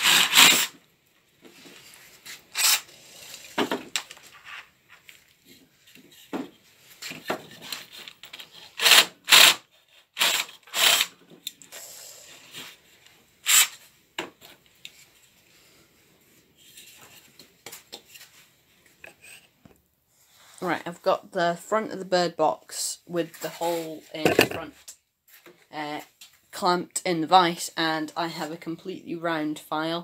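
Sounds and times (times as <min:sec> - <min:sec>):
drill boring through wood: 0:00.0 - 0:00.7, 0:08.8 - 0:09.6, 0:10.2 - 0:11.1.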